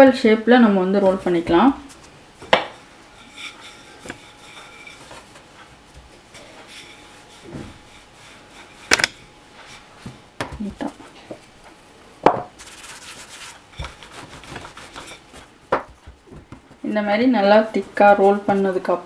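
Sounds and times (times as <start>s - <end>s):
rolling pin rubbing on dough: 3.0s - 8.9s, 12.5s - 19.0s.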